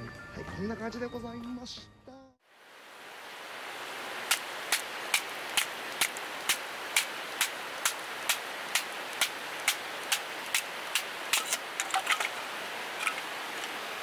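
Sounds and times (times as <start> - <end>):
steady background hiss: 2.5 - 14.0
split sticks clattering: 4.3 - 13.8.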